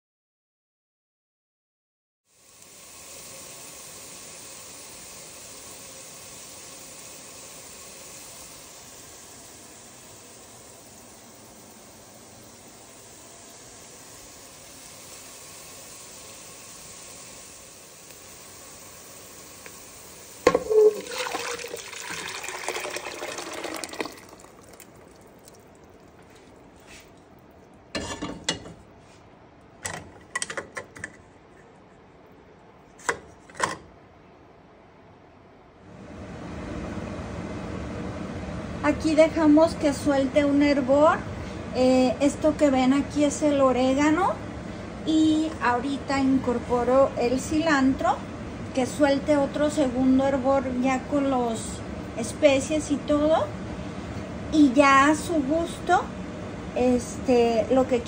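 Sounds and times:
onions sizzling in oil: 2.3 - 27.1
sauce splashing and hissing: 2.3 - 27.8.

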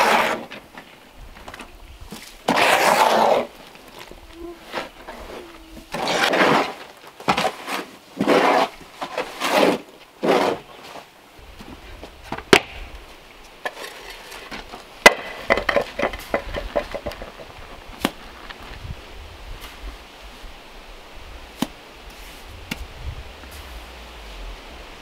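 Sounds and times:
hoe scraping wet cement: 0.0 - 1.0, 2.1 - 11.2, 13.6 - 18.5, 21.5 - 22.8.

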